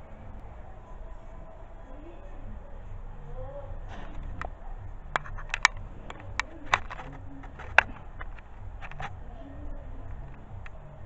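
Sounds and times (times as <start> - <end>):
steady low hum: 0.0 - 11.0
sharp clicks and taps: 4.1 - 9.2.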